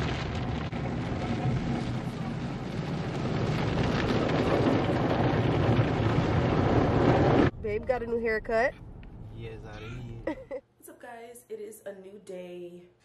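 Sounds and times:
car wash water and brushes rushing: 0.0s - 7.5s.

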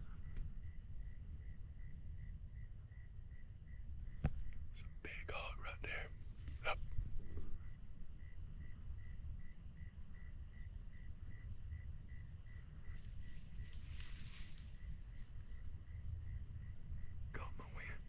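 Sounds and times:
insect chirping: 0.0s - 18.0s
insects buzzing: 0.0s - 18.0s
wind rumble on microphone: 6.1s - 17.4s.

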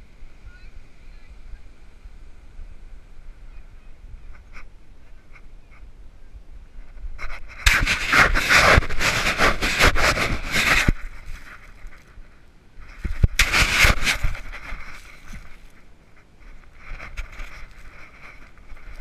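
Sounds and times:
sand scraping against camera housing: 6.9s - 19.0s.

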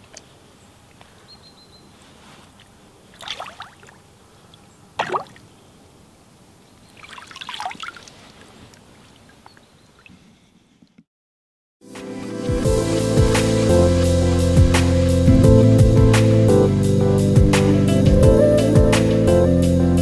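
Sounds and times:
fish splashing in water: 3.1s - 4.0s, 5.0s - 5.4s, 7.0s - 8.4s
water dripping: 3.1s - 5.5s, 6.9s - 10.1s.

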